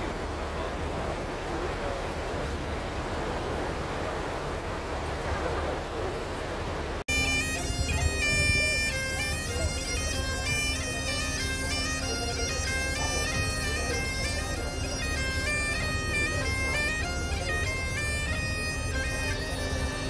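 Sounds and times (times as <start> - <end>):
bagpipes playing a tune: 7.1 - 20.0.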